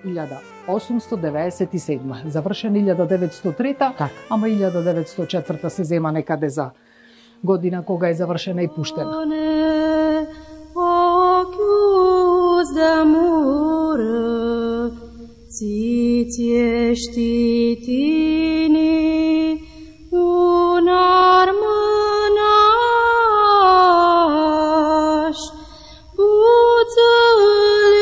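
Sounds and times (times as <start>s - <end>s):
person singing chant-like melody: 0.0s - 6.4s
breaths between phrases: 6.8s - 7.5s.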